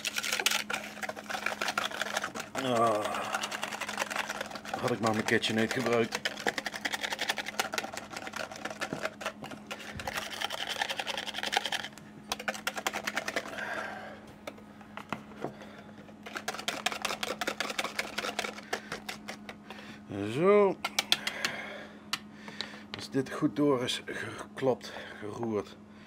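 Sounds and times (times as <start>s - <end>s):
whisk clicking against bowl: 0.0s - 13.5s, 16.3s - 19.6s.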